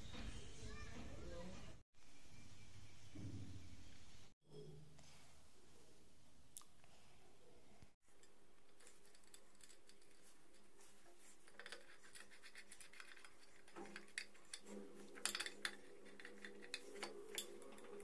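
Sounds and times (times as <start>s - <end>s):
screwdriver clicking and scraping metal: 8.2s - 18.0s.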